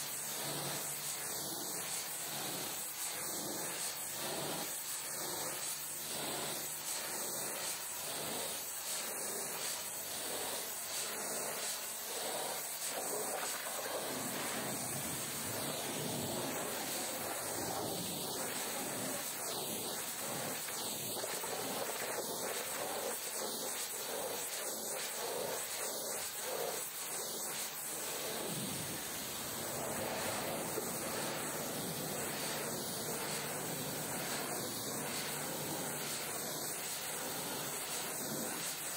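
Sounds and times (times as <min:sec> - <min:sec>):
pressure washer spraying: 0:09.3 - 0:23.6, 0:27.1 - 0:38.9.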